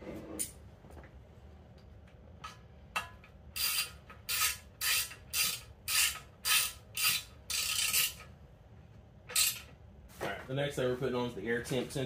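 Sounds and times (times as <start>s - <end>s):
hand ratchet clicking: 3.6s - 8.3s, 9.3s - 9.7s.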